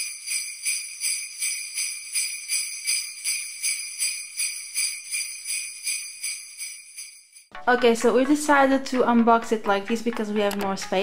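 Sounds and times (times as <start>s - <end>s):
sleigh bells jingling: 0.0s - 7.5s.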